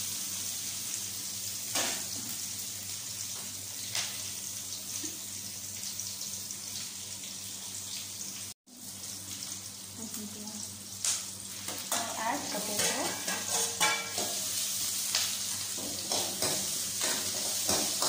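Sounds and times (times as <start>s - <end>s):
onions sizzling in hot oil: 0.0s - 18.0s.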